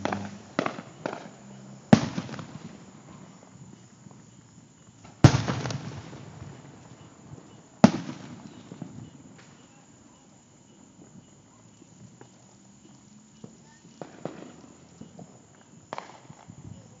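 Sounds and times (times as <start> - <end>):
firework pops: 0.0 - 3.3, 5.0 - 9.9, 11.0 - 17.0
firework booms with echo: 0.0 - 3.5, 5.0 - 10.3, 13.4 - 17.0.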